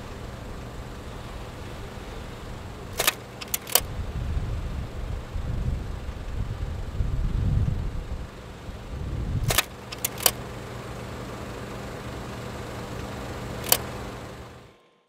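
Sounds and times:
steady low hum: 0.0s - 15.0s
sharp clicks: 2.9s - 3.9s, 9.4s - 10.5s, 13.4s - 14.2s
wind rumble on microphone: 3.8s - 9.5s.

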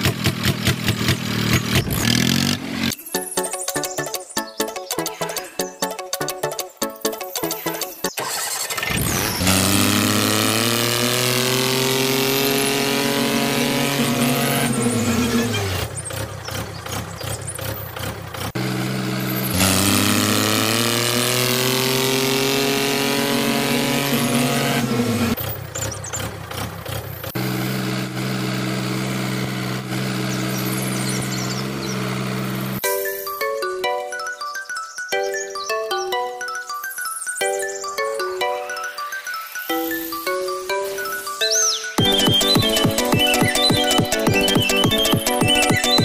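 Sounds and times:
tractor engine revving and idling: 0.0s - 3.1s, 7.0s - 32.9s, 42.0s - 46.0s.

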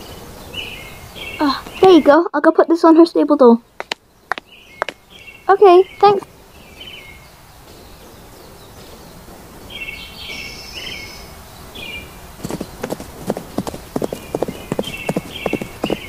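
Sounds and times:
horse hooves clip-clopping: 12.4s - 16.0s.

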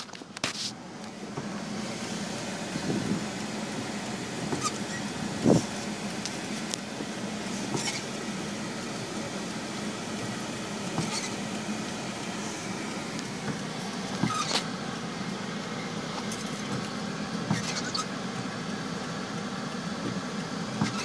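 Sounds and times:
car engine hum in cabin: 0.0s - 21.0s
steering wheel clicks and taps: 12.2s - 14.7s, 15.6s - 17.7s, 19.4s - 21.0s.

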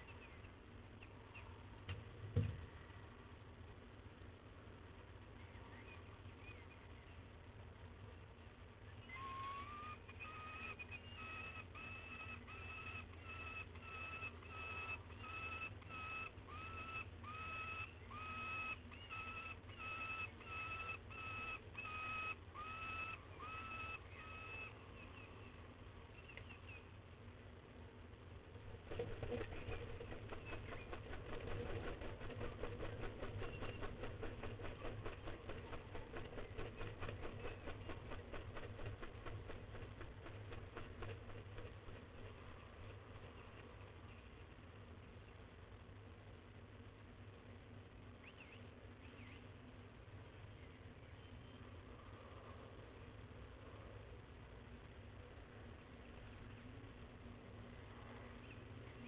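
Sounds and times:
falcon calling: 9.0s - 25.2s.

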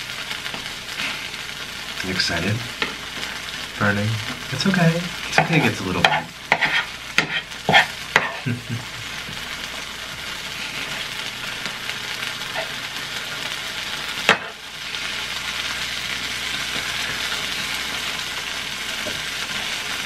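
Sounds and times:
cheese sizzling on a griddle: 0.0s - 20.0s
spatula scraping a griddle: 5.3s - 8.6s, 12.4s - 13.6s.

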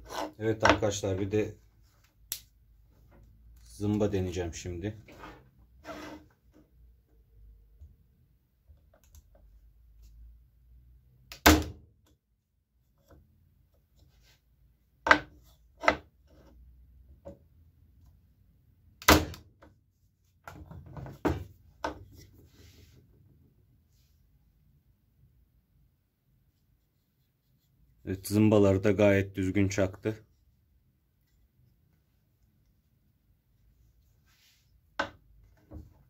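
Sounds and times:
knocks and rustling of handling: 19.6s - 23.6s, 33.6s - 36.0s.

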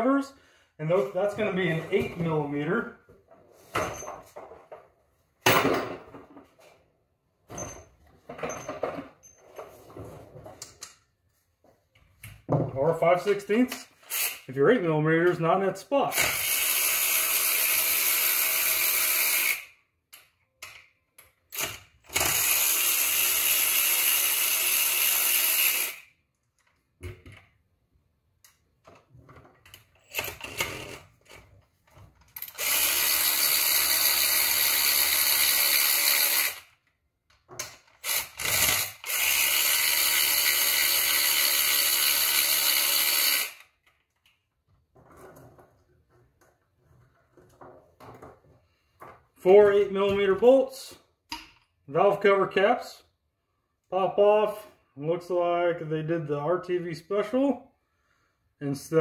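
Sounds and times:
electric ratchet spinning: 14.0s - 14.5s, 16.2s - 19.7s, 21.6s - 26.1s, 32.4s - 36.8s, 38.0s - 43.8s.

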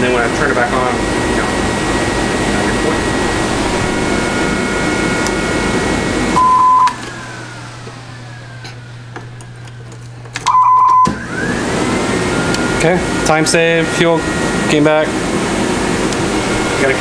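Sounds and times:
fan-like whir: 0.0s - 17.0s
short high electronic beep: 6.4s - 7.0s.

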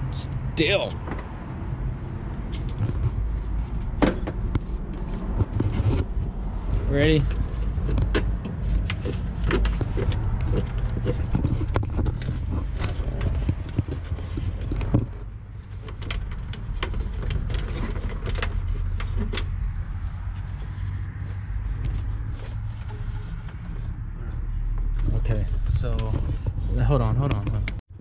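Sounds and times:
steady low rumble: 0.0s - 27.8s
hose fittings clicking and knocking: 7.2s - 19.6s.

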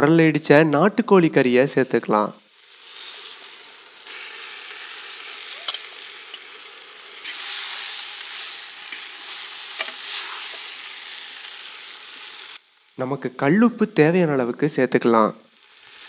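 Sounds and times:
meat sizzling in hot oil: 2.3s - 13.0s, 15.5s - 16.0s.

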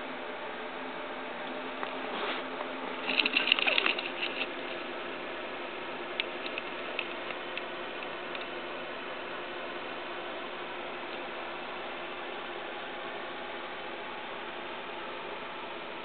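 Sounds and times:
small clicks and rattles: 3.0s - 4.9s, 6.2s - 8.5s.

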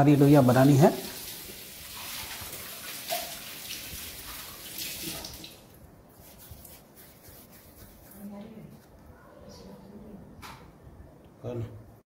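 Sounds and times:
palms rubbing dough: 6.1s - 9.1s.

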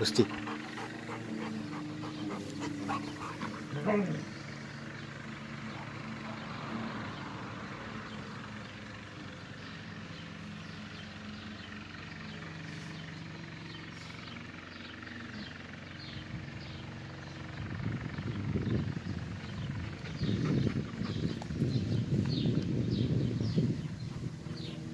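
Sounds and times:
low engine drone: 0.0s - 24.9s.

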